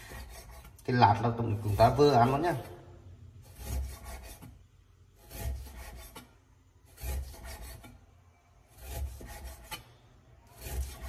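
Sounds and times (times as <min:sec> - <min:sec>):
knife slicing through meat: 0:03.4 - 0:04.6, 0:05.2 - 0:08.0, 0:08.7 - 0:11.0.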